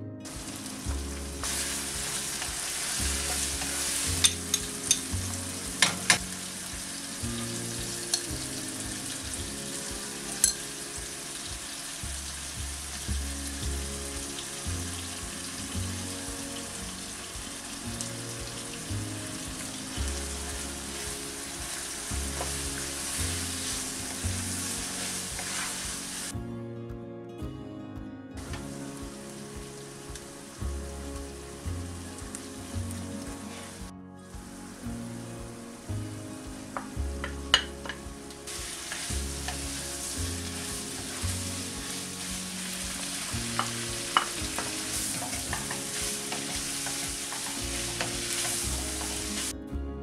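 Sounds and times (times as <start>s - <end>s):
food sizzling in a wok: 0.3s - 26.3s, 28.4s - 30.6s, 35.8s - 49.5s
wooden spatula tapping pan: 1.4s - 12.2s, 41.8s - 49.5s.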